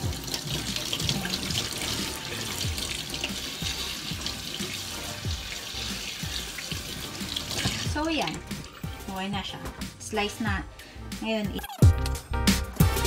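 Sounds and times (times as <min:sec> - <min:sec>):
tap water running into sink: 0:00.0 - 0:09.8.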